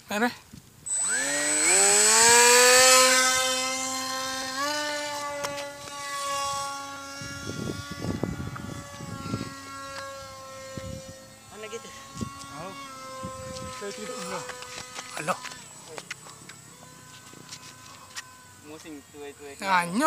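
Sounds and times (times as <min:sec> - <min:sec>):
model plane motor whine: 0:00.1 - 0:20.0
wind buffeting microphone: 0:00.5 - 0:15.0.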